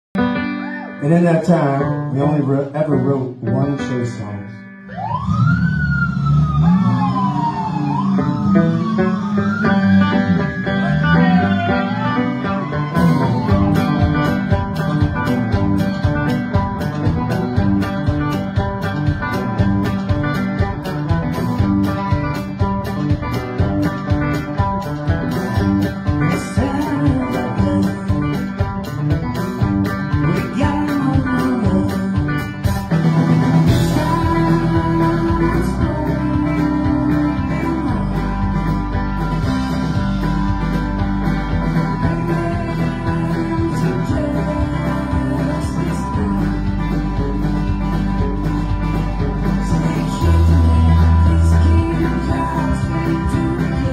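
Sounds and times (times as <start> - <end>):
electric guitar: 0.2 - 53.9
deep bass: 1.0 - 53.9
banjo: 11.1 - 53.9
steady drum beat: 12.6 - 53.9.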